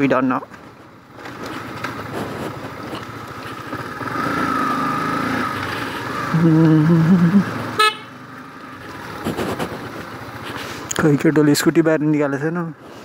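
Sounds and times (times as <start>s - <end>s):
motorcycle engine running: 0.0s - 13.0s
horn toot: 7.8s - 8.2s.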